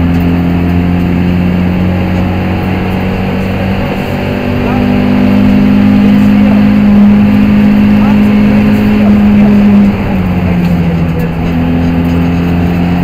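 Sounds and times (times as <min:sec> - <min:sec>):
car engine at high revs: 0:00.0 - 0:13.0.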